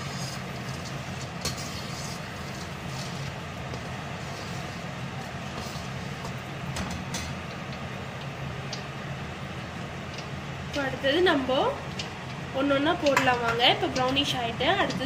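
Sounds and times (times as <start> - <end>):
seeds and lentils sizzling in oil: 0.0 - 6.7.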